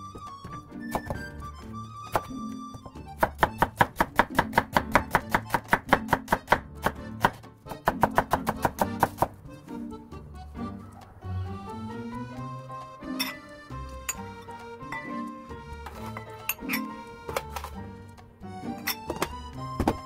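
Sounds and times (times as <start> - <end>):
background music: 0.0 - 20.0
knife chopping on wooden board: 2.1 - 2.3, 3.2 - 9.4, 19.0 - 20.0.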